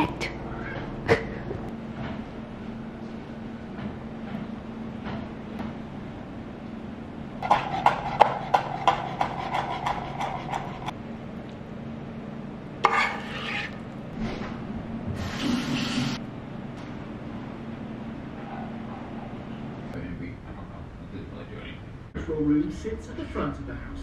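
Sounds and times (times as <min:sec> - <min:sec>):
steady low hum: 0:00.0 - 0:15.4, 0:16.2 - 0:24.0
utensil scrape: 0:07.4 - 0:10.9, 0:12.8 - 0:14.5.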